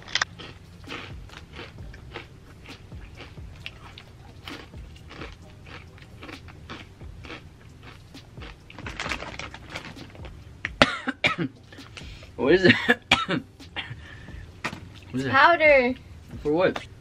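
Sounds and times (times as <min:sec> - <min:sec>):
person chewing crunchy chips: 0:00.0 - 0:10.8.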